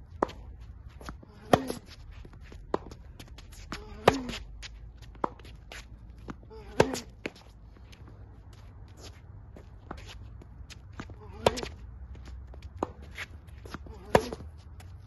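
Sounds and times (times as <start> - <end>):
racket striking tennis ball: 1.4 - 1.9, 2.6 - 4.4, 6.7 - 7.2, 12.8 - 14.4.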